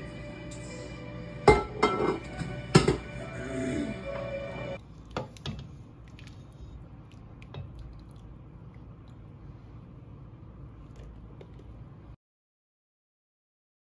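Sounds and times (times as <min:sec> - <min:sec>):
wet squishing of beans: 0:04.8 - 0:10.0, 0:10.6 - 0:12.0.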